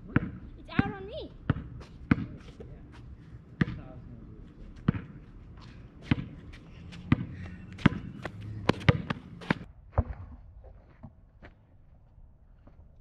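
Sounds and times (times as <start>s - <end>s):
basketball bouncing on asphalt: 0.0s - 2.7s, 3.5s - 4.0s, 4.7s - 10.2s.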